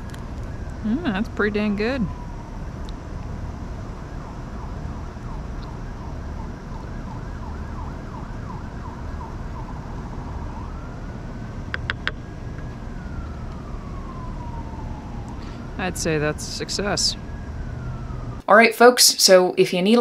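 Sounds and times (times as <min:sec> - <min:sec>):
low background rumble: 0:00.0 - 0:18.4
emergency vehicle siren: 0:00.0 - 0:18.5
sharp clicks: 0:11.7 - 0:12.2.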